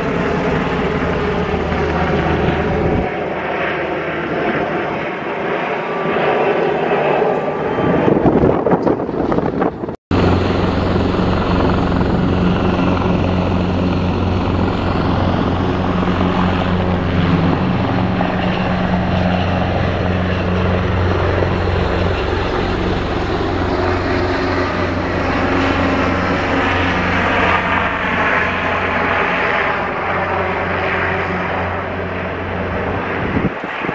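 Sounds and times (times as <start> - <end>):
helicopter rotor thrum: 8.6 - 33.9.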